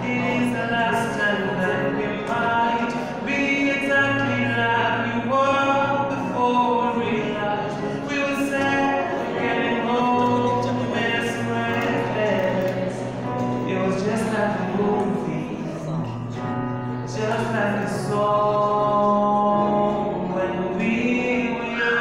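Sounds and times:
man singing through pa: 0:00.0 - 0:22.0.

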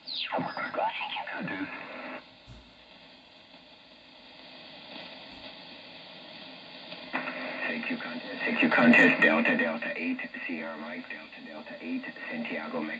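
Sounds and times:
radio band noise hiss: 0:00.0 - 0:12.9
garbled radio voice: 0:00.2 - 0:02.1, 0:07.2 - 0:12.9.

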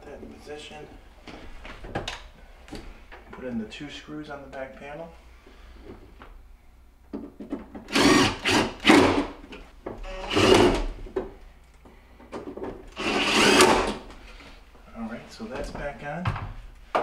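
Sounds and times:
cordless drill driving screws: 0:07.9 - 0:09.3, 0:10.1 - 0:10.8, 0:12.9 - 0:14.0.

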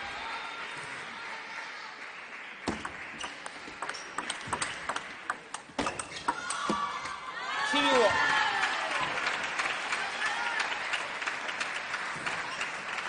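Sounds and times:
table tennis ball clicks: 0:02.7 - 0:06.7.

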